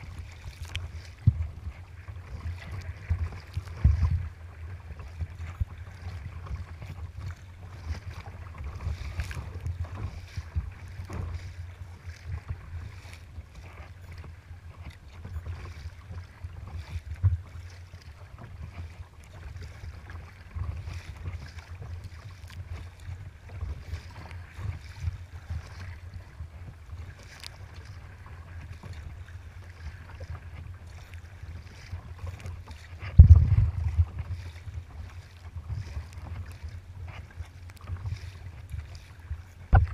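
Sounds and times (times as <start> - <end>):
wind buffeting microphone: 0.0 - 13.6, 27.8 - 39.9
water slapping against kayak: 0.0 - 39.9.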